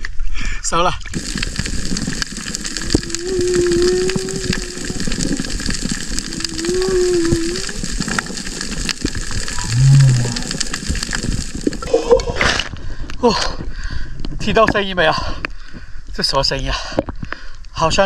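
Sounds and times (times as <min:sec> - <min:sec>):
steady crackling background: 0:00.0 - 0:18.0
whale song moans underwater: 0:02.5 - 0:08.6, 0:09.5 - 0:10.7.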